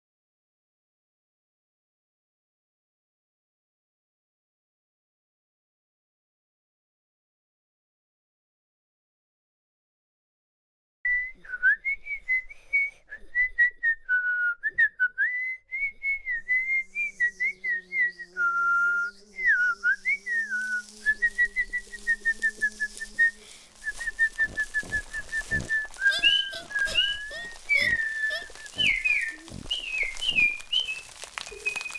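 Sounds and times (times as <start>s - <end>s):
whistling with trills: 11.1s - 31.9s
high chirps: 19.1s - 31.9s.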